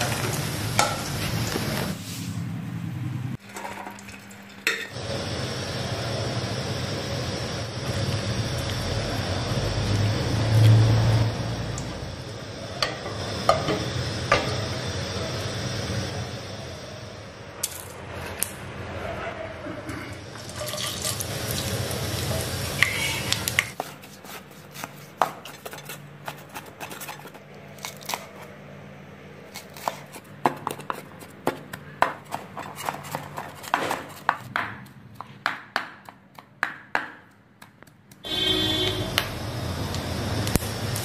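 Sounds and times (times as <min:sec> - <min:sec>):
spices sizzling in hot oil: 0:00.0 - 0:02.0, 0:20.2 - 0:23.8, 0:38.3 - 0:41.0.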